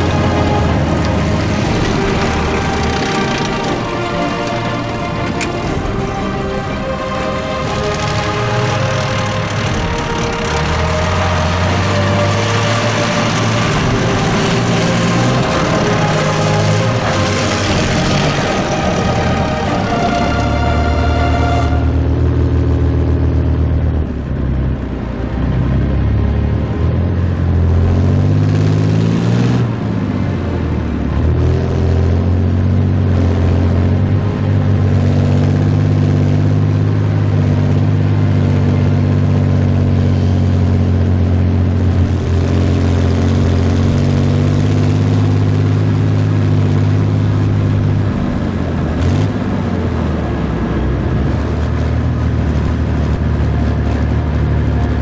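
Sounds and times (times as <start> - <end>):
vehicle engine revving: 0.0 - 55.0.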